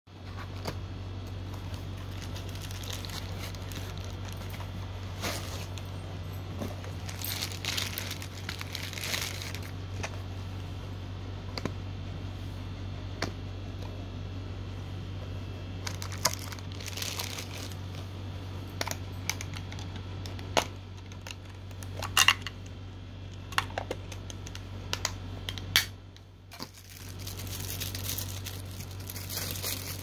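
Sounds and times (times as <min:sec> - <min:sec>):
steady low hum: 0:00.1 - 0:30.0
plastic wrapping crinkling: 0:01.3 - 0:10.1, 0:15.8 - 0:18.0, 0:26.5 - 0:30.0.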